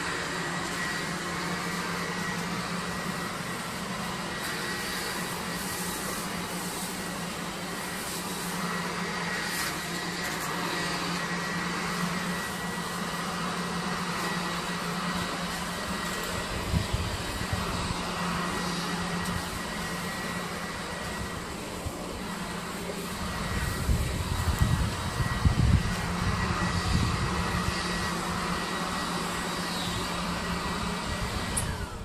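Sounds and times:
yard machinery engine drone: 0:00.0 - 0:32.0.

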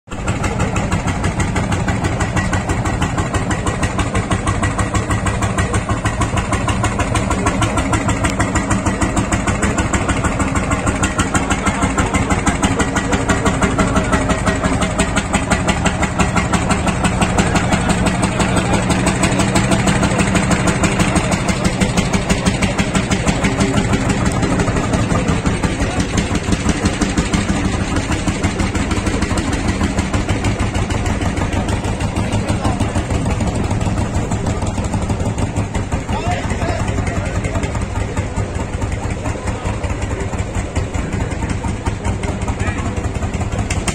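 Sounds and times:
tractor engines chugging: 0:00.0 - 0:43.9.

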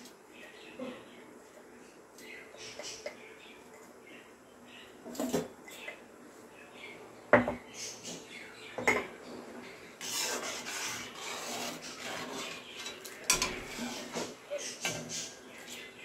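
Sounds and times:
metal ladle scraping cooking pot: 0:10.0 - 0:14.4.

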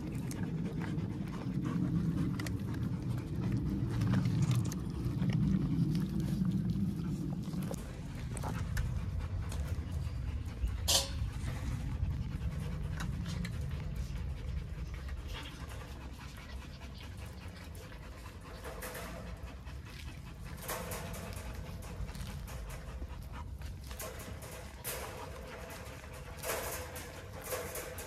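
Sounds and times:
puppies panting: 0:00.0 - 0:28.0
steady low rumble: 0:00.0 - 0:28.0
paws knocking wire crate: 0:08.3 - 0:28.0.

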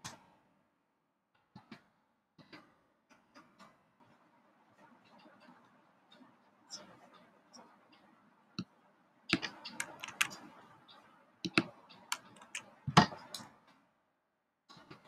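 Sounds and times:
keyboard and mouse clicking: 0:09.3 - 0:10.6, 0:11.5 - 0:13.5.

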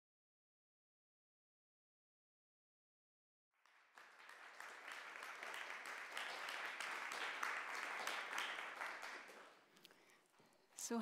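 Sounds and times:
audience applauding: 0:03.6 - 0:10.1.

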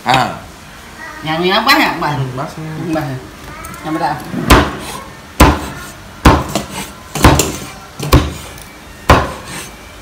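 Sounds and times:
cleaver chopping on wooden board: 0:04.5 - 0:04.8, 0:05.4 - 0:08.4, 0:09.1 - 0:09.5.

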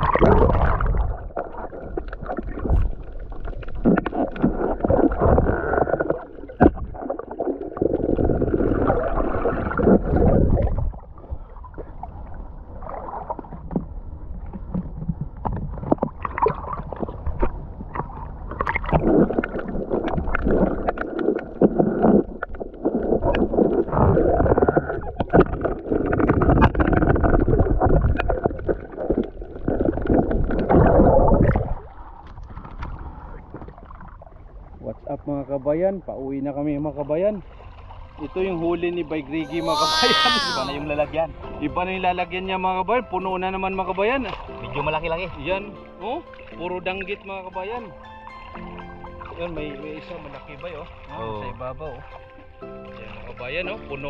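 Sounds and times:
seawater sloshing and gurgling: 0:00.0 - 0:34.8.

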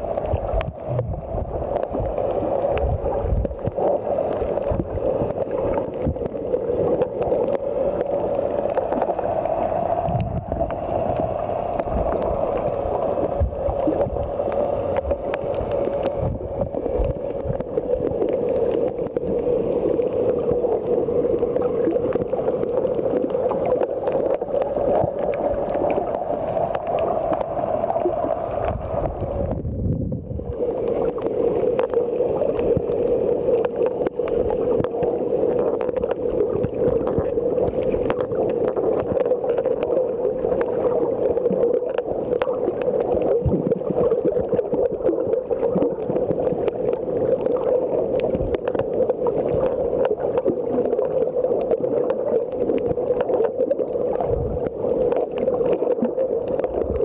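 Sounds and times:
faint clicks and crackles: 0:00.0 - 0:57.0
muffled underwater water rush: 0:00.0 - 0:57.0
low rumble: 0:00.6 - 0:01.6, 0:28.3 - 0:30.6.

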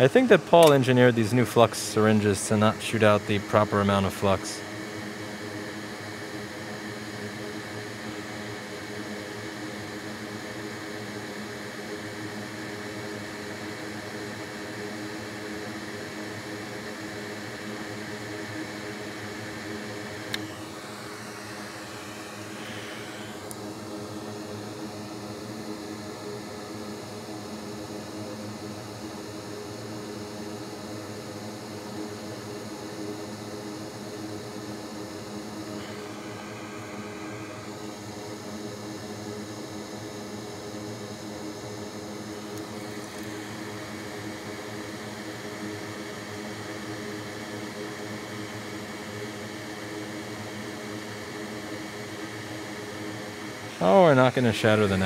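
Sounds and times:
fan whirring drone: 0:00.0 - 0:55.0
single click: 0:00.6 - 0:00.8.

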